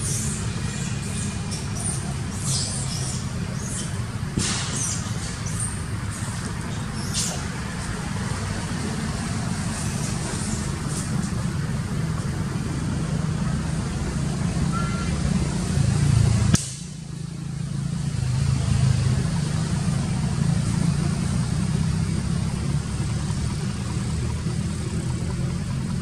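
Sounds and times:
high squeaks and chirps: 0.0 - 4.0
low engine rumble: 0.0 - 26.0.

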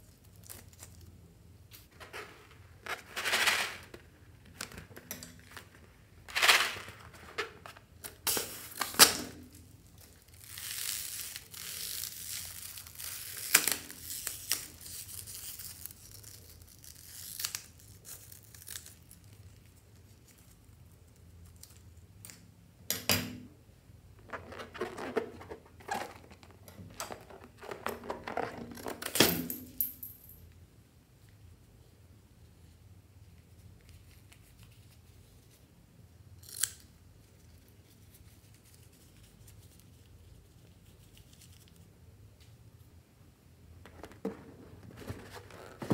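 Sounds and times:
balloon crinkling and tearing: 9.9 - 20.5.

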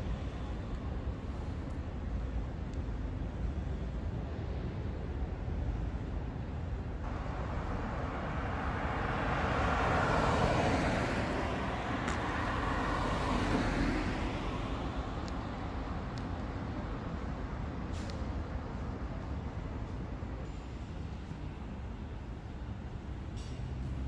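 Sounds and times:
low traffic rumble: 0.0 - 24.0
car driving past: 7.1 - 15.3.

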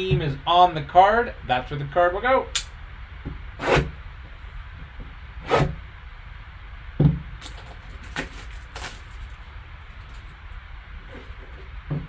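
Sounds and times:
plastic wrap ripping: 7.4 - 10.3.

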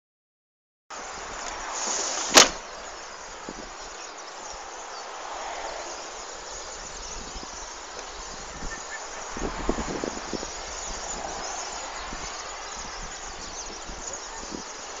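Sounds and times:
outdoor background hiss: 0.9 - 15.0.

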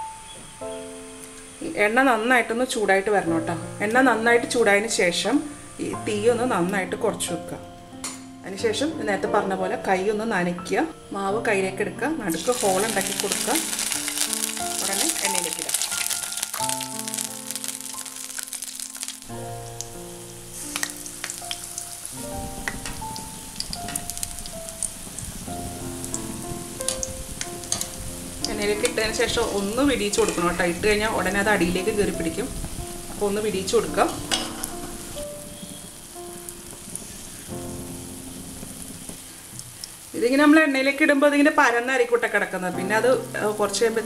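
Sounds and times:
background music of held chords: 3.3 - 39.7
oil sizzling and crackling: 12.3 - 40.6.

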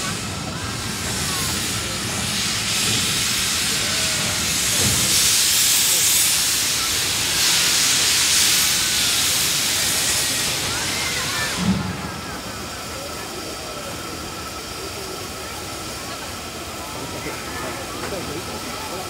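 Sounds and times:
steam locomotive venting steam: 0.0 - 19.0.

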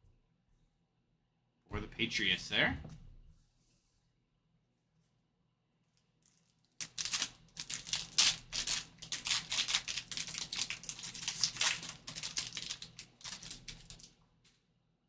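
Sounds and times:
foil wrapper tearing and crinkling: 6.2 - 14.2.

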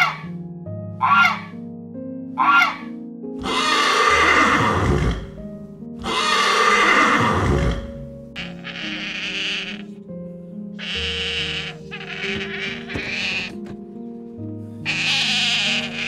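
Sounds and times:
background music with held notes: 0.0 - 16.0
goose honk: 1.0 - 1.5, 2.4 - 2.9, 8.4 - 9.9, 10.8 - 13.6, 14.9 - 16.0
horse neighing: 2.4 - 5.4, 6.0 - 9.9, 10.8 - 13.7, 14.9 - 16.0.

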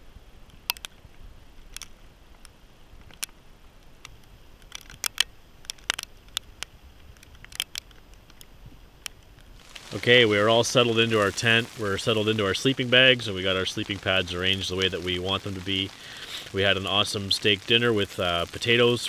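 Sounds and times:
campfire crackling: 0.5 - 19.0
burning logs popping: 3.9 - 19.0.

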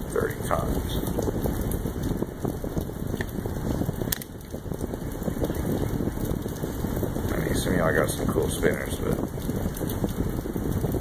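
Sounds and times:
rain pattering on microphone: 0.0 - 11.0.

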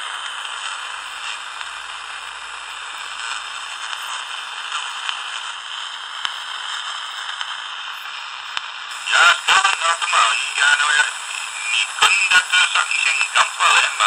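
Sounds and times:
radio static hiss: 0.0 - 14.0
distorted radio voice: 8.9 - 14.0.

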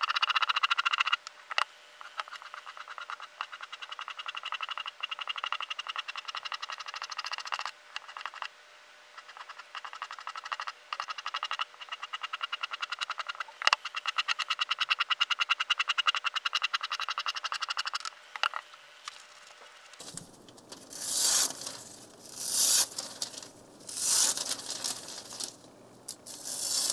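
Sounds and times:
knife slicing paper: 20.0 - 25.6, 26.2 - 26.9.

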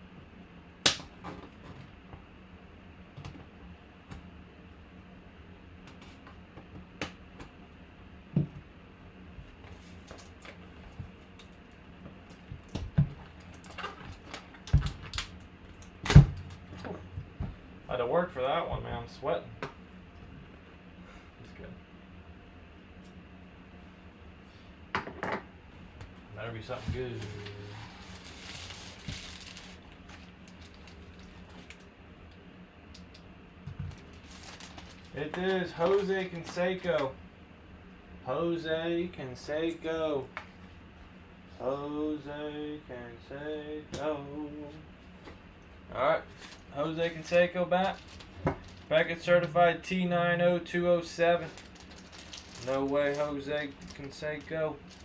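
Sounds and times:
low steady hum: 0.0 - 55.0
plastic wrapping crinkling: 27.3 - 31.9, 33.8 - 36.5, 46.3 - 49.0, 51.2 - 55.0.

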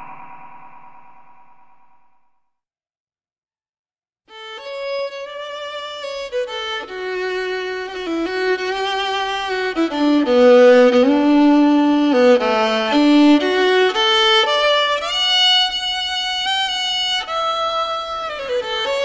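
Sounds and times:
solo violin melody: 4.3 - 19.0.

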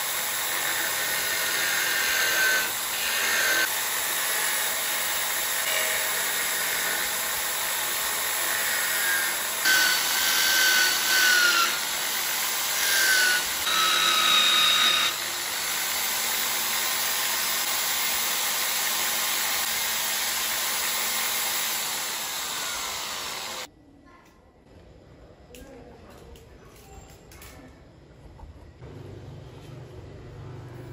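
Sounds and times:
electric drill running: 0.0 - 23.7.

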